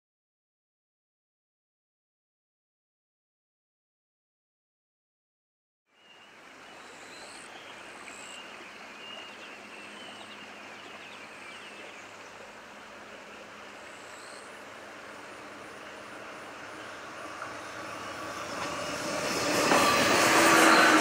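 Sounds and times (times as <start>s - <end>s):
outdoor background noise: 5.9s - 21.0s.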